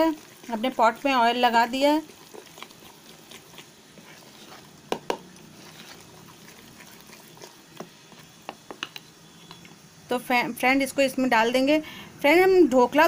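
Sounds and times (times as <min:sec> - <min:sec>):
spoon scraping batter in bowl: 0:00.0 - 0:09.6.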